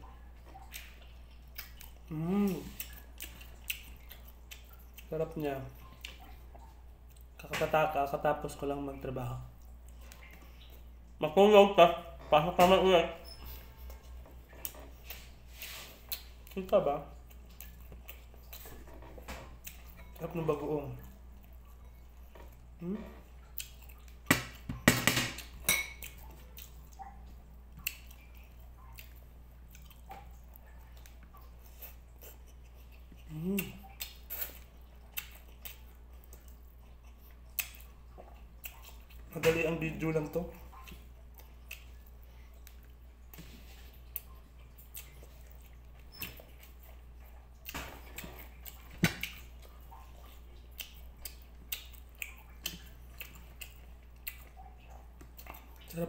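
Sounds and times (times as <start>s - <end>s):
person chewing: 0.4s - 7.5s, 9.4s - 11.2s, 12.0s - 24.8s, 25.4s - 56.0s
mouth clicks and smacks: 0.5s - 7.6s, 27.8s - 39.6s, 40.6s - 43.4s, 44.0s - 56.0s.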